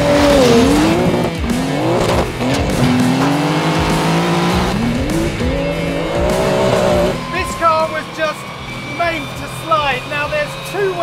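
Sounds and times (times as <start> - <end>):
car engine revving hard: 0.0 - 7.3.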